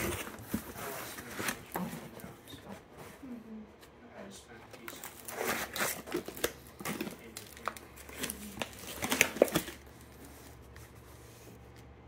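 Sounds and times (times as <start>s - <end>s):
plastic packaging crinkling: 4.7s - 10.8s.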